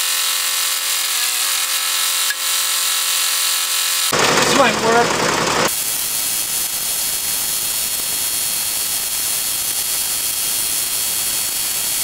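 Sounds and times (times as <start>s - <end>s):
steady hiss: 5.7s - 12.0s.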